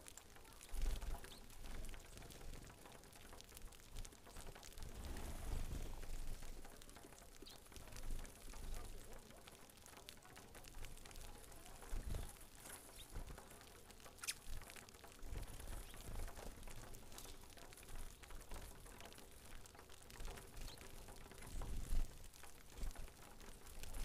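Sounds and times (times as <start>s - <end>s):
birds pecking ticks and patter: 0.0s - 24.0s.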